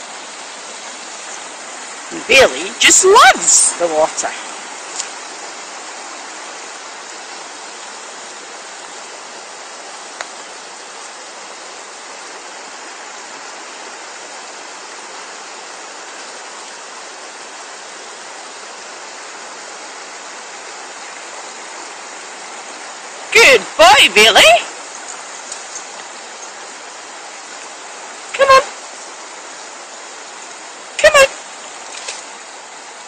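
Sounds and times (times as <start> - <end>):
river running over stones: 0.0 - 33.0.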